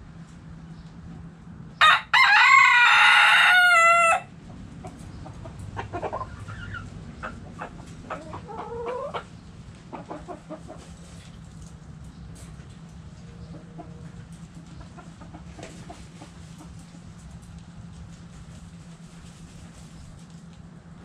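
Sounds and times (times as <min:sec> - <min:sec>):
rooster crowing: 0:01.8 - 0:04.3
hens clucking: 0:03.0 - 0:11.8, 0:12.6 - 0:19.8.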